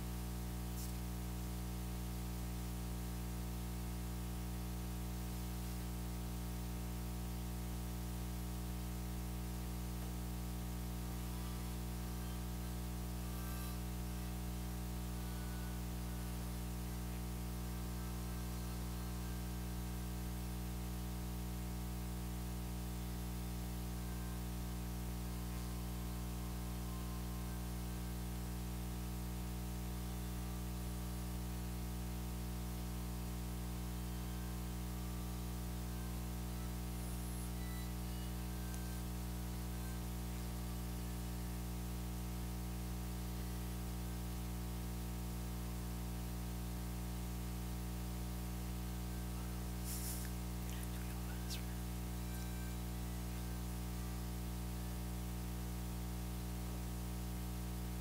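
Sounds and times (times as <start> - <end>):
background hiss: 0.0 - 1.7, 9.9 - 20.0, 49.0 - 54.1
electrical hum: 0.0 - 58.0.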